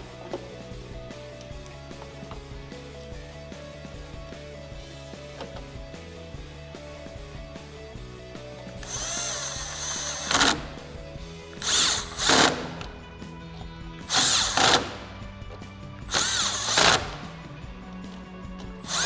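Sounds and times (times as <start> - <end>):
background music: 0.0 - 19.0
power driver motor whine: 8.8 - 10.9, 16.1 - 17.4, 18.8 - 19.0.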